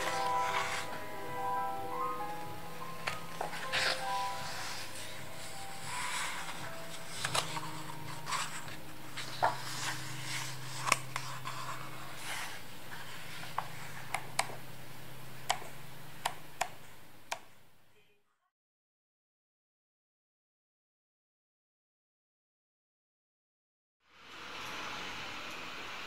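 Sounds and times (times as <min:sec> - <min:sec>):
book pages turning: 0:00.0 - 0:01.0, 0:02.9 - 0:14.6
steady low hum: 0:00.0 - 0:18.0.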